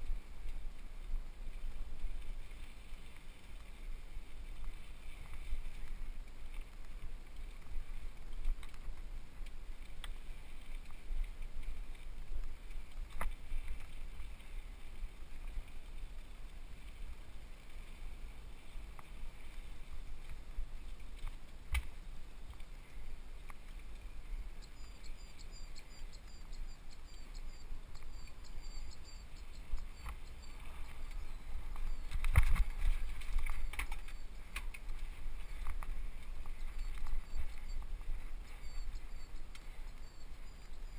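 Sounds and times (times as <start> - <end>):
wind and trail rumble: 0.0 - 40.9
faint high chirping: 24.5 - 32.4, 36.4 - 40.9.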